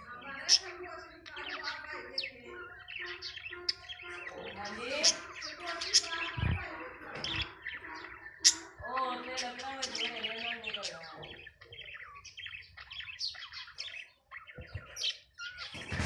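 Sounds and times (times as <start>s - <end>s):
budgerigars chattering: 0.0s - 16.0s
dull low thumps: 6.3s - 6.7s.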